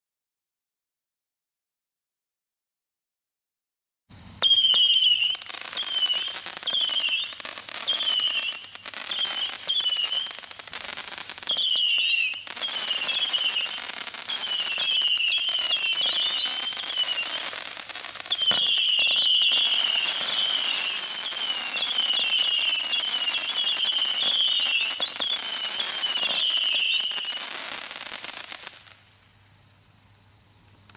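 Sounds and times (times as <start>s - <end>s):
firework hiss and crackle: 4.1s - 29.8s
screaming firework whistles: 4.4s - 29.0s.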